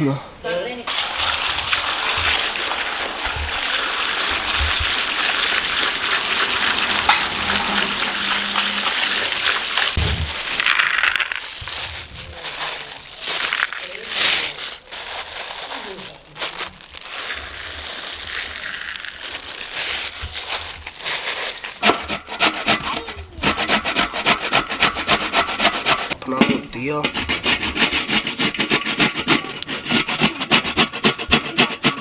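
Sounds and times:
carrots grated on metal grater: 0:21.8 - 0:32.0.

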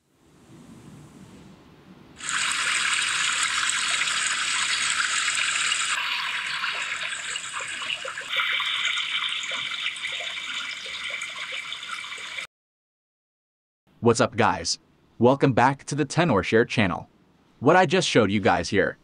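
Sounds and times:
running water rushing: 0:02.2 - 0:12.5.

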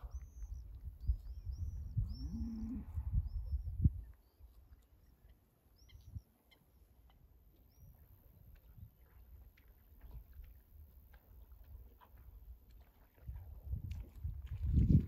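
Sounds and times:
bird chirping: 0:00.0 - 0:08.2.

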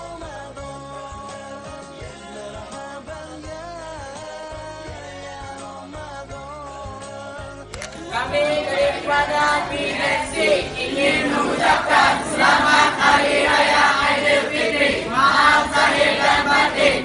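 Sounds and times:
crowd singing in unison: 0:07.8 - 0:17.0.

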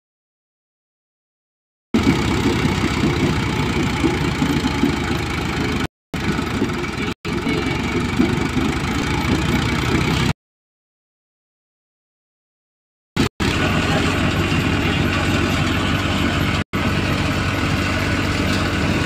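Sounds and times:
thresher machine churning: 0:02.0 - 0:10.3, 0:13.2 - 0:19.0.

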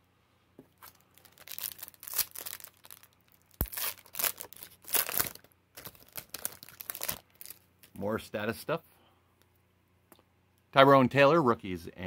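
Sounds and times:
foil wrapper crinkling and tearing: 0:00.8 - 0:08.0.

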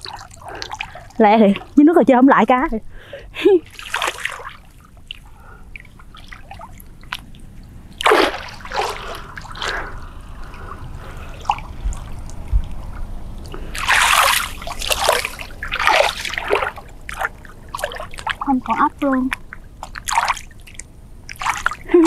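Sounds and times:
pond water splashing: 0:00.0 - 0:01.8, 0:03.6 - 0:22.0.

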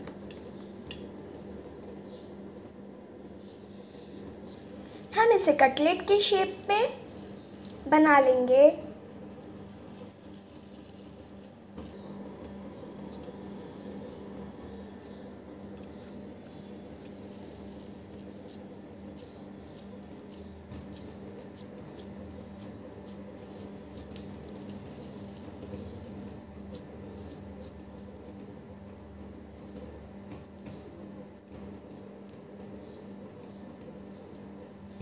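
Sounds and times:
steady low hum: 0:00.0 - 0:35.0
hands patting sticky mixture: 0:13.0 - 0:34.8.

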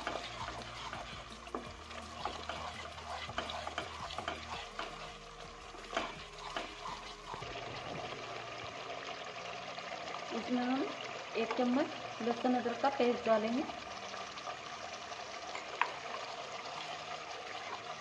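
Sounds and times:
spatula scraping a pan: 0:00.0 - 0:07.6
masala sizzling in oil: 0:00.0 - 0:18.0.

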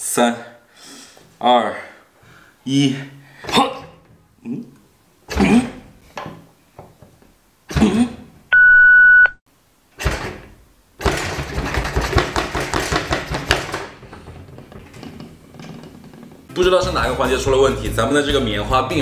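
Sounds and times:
loud electronic beep: 0:08.5 - 0:09.4.

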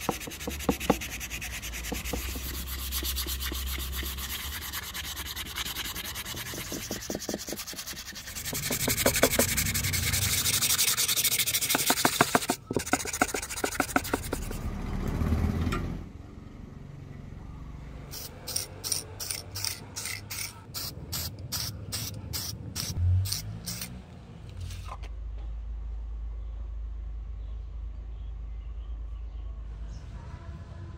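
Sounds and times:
sandpaper rubbing on wood: 0:00.0 - 0:14.6, 0:18.2 - 0:23.9.

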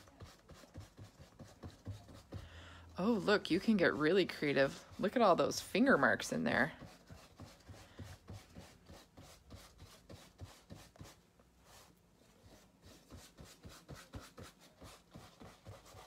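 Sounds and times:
fingertips tapping paint on canvas: 0:00.0 - 0:02.6.

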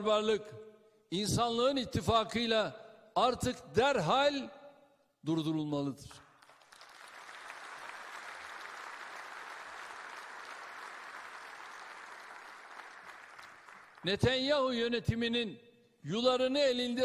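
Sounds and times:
audience applauding: 0:06.4 - 0:14.1.

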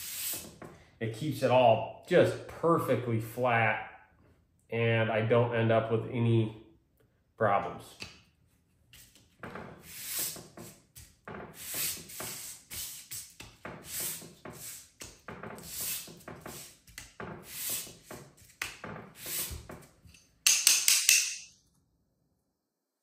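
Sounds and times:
rasping scrape on sandpaper: 0:00.0 - 0:00.6, 0:09.8 - 0:18.6, 0:19.2 - 0:19.7.

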